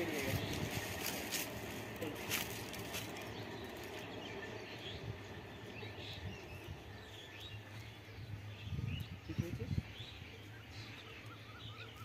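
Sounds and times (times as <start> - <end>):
small birds chirping: 0.0 - 12.0
steady low rumble: 0.0 - 12.0.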